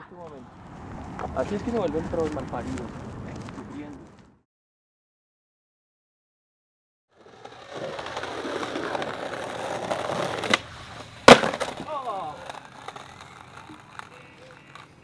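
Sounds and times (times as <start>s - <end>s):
skateboard wheels rolling on concrete: 0.2s - 4.4s, 7.1s - 15.0s
skater slamming on ground: 11.2s - 12.3s.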